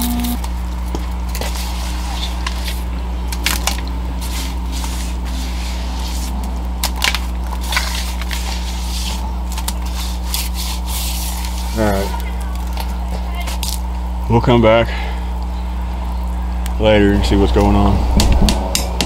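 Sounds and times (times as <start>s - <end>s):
steady low hum: 0.0s - 19.0s
concrete mix crunching and scraping: 0.3s - 13.9s.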